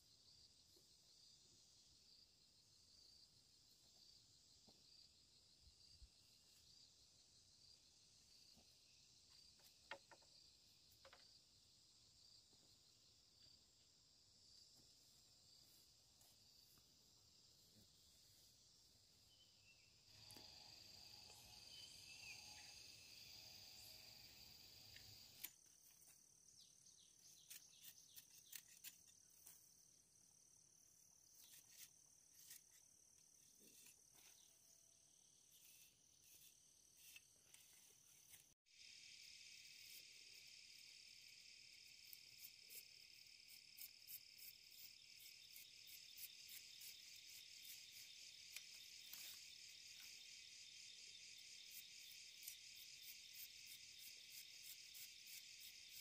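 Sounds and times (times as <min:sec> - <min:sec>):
insect chirring: 0:19.2 - 0:29.7, 0:38.7 - 0:56.0.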